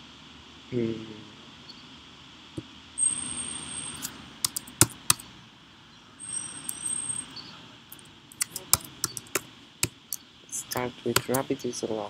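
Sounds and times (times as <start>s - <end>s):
keyboard keys clicking: 4.0s - 5.2s, 8.3s - 9.4s, 11.1s - 11.5s.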